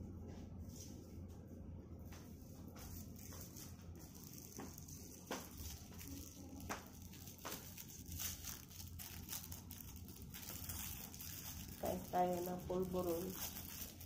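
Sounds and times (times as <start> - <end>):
low steady hum: 0.0 - 14.0
wrapper crinkling: 3.2 - 14.0.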